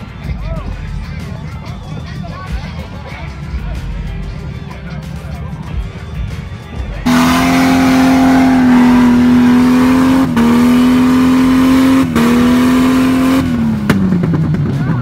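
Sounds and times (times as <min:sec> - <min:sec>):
engine at high revs: 0:07.0 - 0:14.7.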